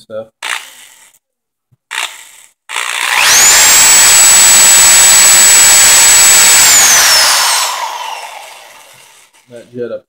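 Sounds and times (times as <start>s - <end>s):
electric drill motor whine: 2.7s - 9.4s.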